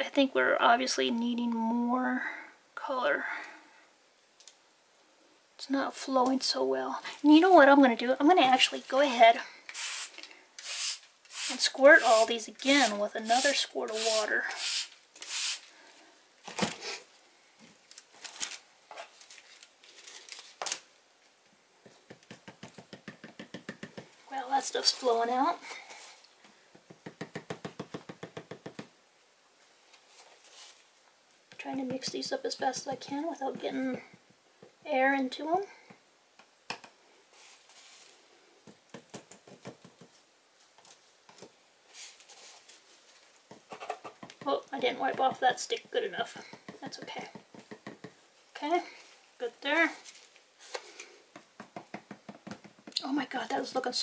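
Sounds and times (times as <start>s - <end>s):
stir stick tapping plastic cups: 21.8s - 24.2s, 26.7s - 28.9s, 43.5s - 48.2s, 50.8s - 53.0s.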